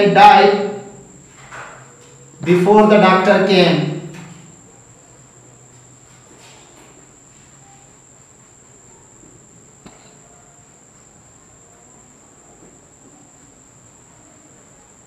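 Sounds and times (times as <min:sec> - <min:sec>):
steady high-pitched tone: 0:00.0 - 0:01.3, 0:02.4 - 0:04.7.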